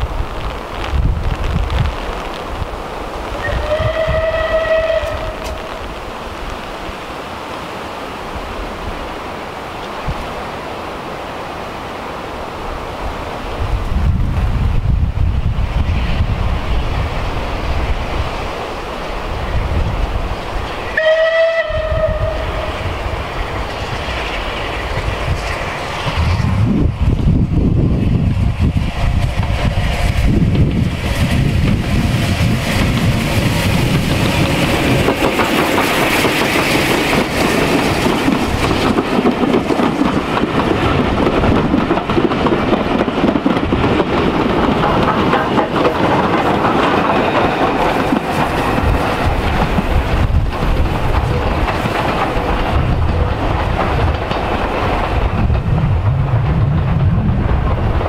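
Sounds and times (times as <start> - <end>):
steam train passing: 0.0 - 58.0.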